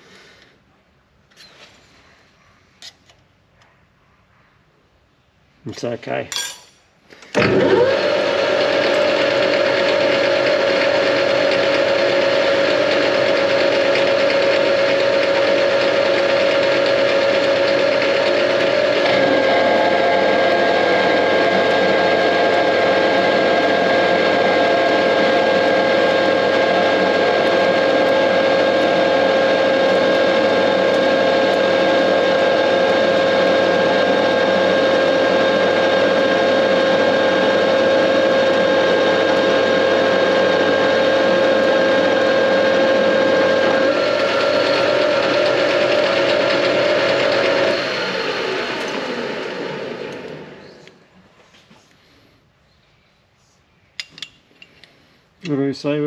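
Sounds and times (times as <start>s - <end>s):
metal lathe whining: 7.3s - 50.8s.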